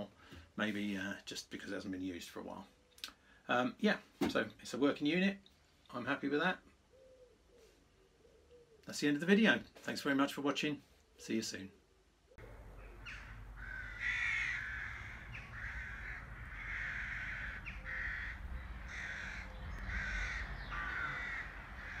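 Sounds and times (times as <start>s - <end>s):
crow cawing: 12.7s - 22.0s.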